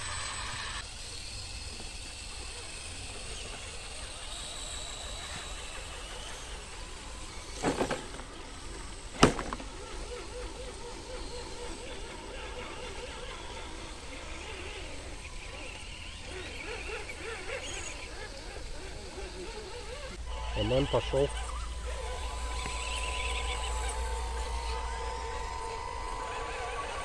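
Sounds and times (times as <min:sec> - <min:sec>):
rc truck motor whine: 0:00.0 - 0:27.0
loud sharp knocks: 0:09.2 - 0:09.7
low rumble: 0:21.2 - 0:27.0.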